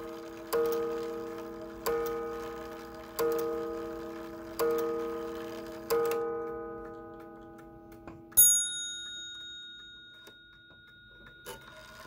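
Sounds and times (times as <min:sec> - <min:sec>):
clock ticking: 0:00.0 - 0:09.5
sharp metallic ring: 0:08.3 - 0:11.9.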